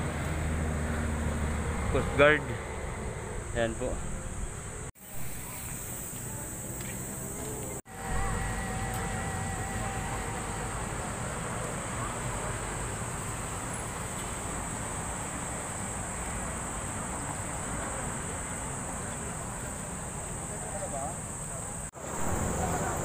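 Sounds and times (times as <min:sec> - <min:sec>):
constant high hiss: 0:03.6 - 0:23.0
faint wavering whistle-like tone: 0:07.9 - 0:11.7.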